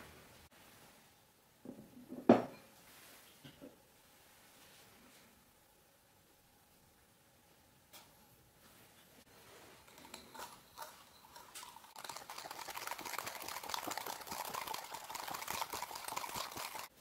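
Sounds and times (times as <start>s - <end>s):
whisk clattering in a bowl: 9.8s - 16.9s.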